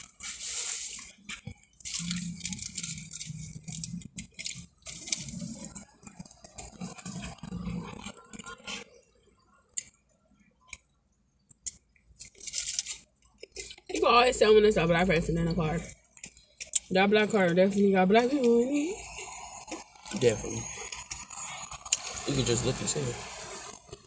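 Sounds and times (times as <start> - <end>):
food being torn apart: 0.0 - 8.8, 11.5 - 13.9
chewing and wet mouth noises: 0.0 - 8.9, 9.7 - 10.0, 10.6 - 14.0, 15.4 - 16.9, 20.8 - 22.2.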